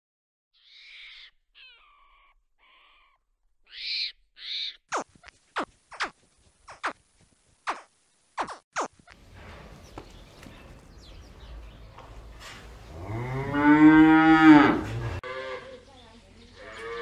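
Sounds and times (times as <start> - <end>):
short animal calls: 0.6 - 6.1.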